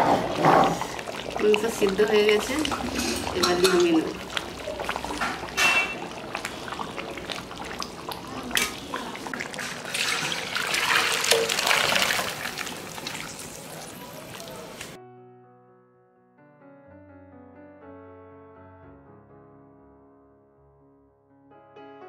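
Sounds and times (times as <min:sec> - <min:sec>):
curry sloshing and pouring: 0:00.0 - 0:15.0
metal utensils knocking: 0:02.8 - 0:04.2, 0:04.9 - 0:06.1.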